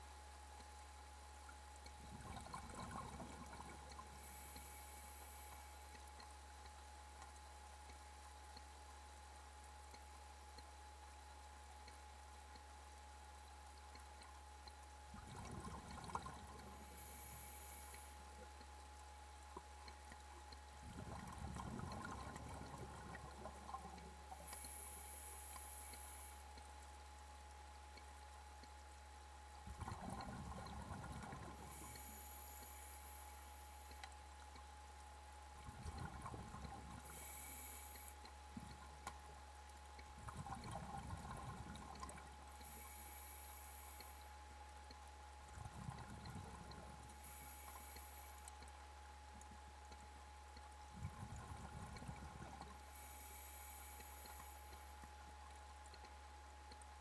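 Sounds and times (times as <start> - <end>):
steady low hum: 0.0 - 57.0
underwater water noise: 0.0 - 57.0.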